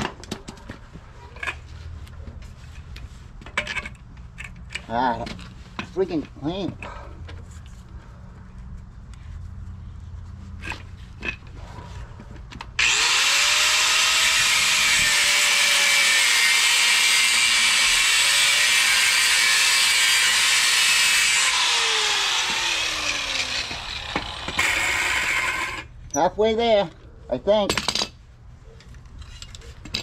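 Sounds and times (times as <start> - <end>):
angle grinder cutting steel: 12.8 - 25.9.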